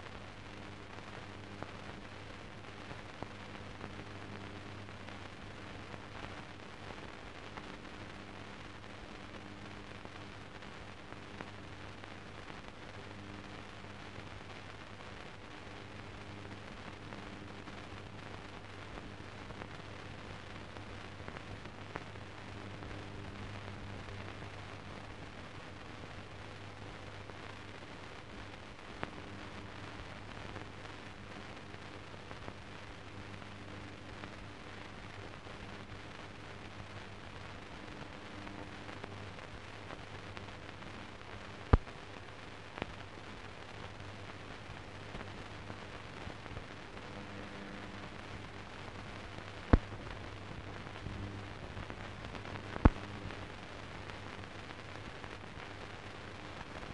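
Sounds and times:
film soundtrack hiss and hum: 0.0s - 56.9s
sharp pops: 41.6s - 42.0s, 49.6s - 50.2s, 52.4s - 53.1s.

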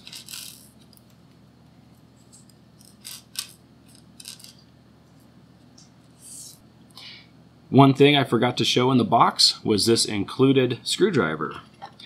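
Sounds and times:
small metal screws clicking: 0.0s - 1.0s, 2.8s - 4.6s.

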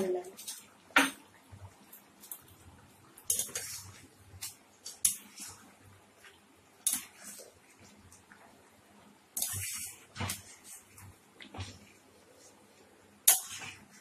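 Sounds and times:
utensil scraping and knocking pot: 9.4s - 11.0s.

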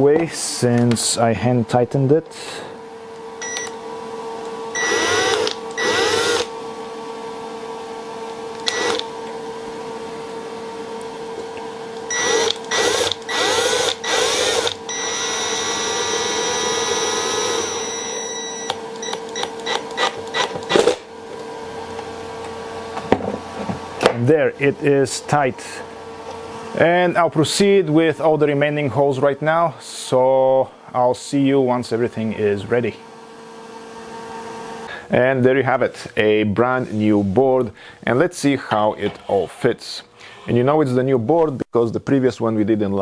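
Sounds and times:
steady hum: 0.0s - 41.7s
cordless driver spinning bolt: 4.8s - 6.5s, 8.6s - 9.1s, 12.1s - 17.7s.

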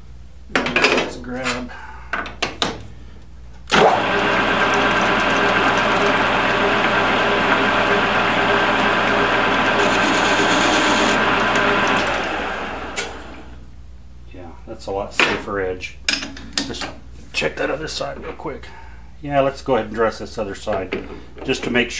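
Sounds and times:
metal lathe whining: 3.7s - 13.6s.

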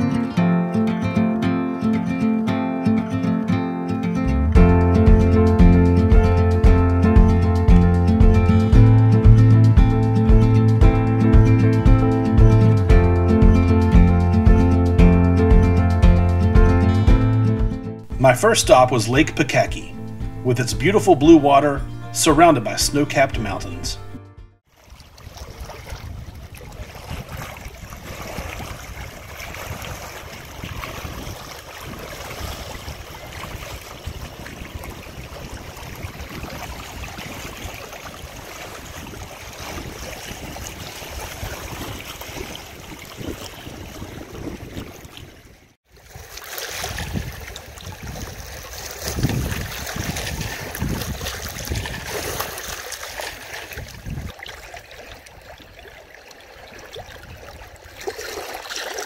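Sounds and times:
moving water: 18.0s - 59.0s
wind buffeting microphone: 25.2s - 45.6s, 46.9s - 52.4s, 53.7s - 54.4s.

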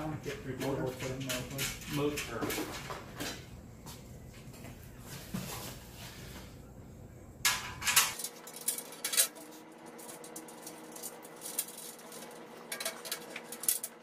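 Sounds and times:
metal clinks and rattles: 7.5s - 14.0s.

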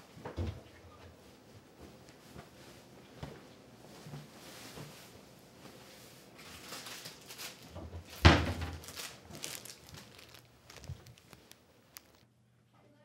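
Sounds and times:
cloth rustling: 3.8s - 12.3s.

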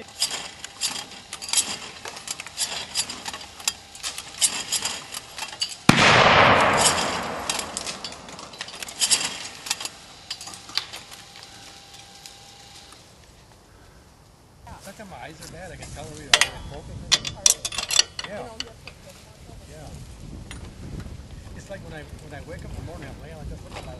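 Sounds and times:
loud bang: 5.9s - 9.5s.

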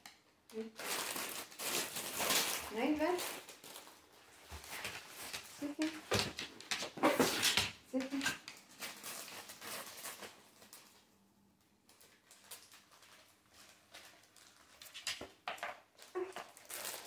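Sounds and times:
dogs pattering on wooden floor: 2.5s - 10.3s, 12.0s - 17.0s.

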